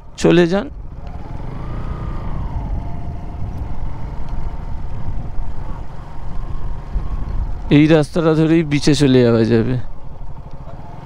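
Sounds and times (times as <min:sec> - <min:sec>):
motorcycle engine running: 0:00.0 - 0:11.0
road rumble: 0:00.0 - 0:11.0
wind on microphone: 0:02.2 - 0:07.7.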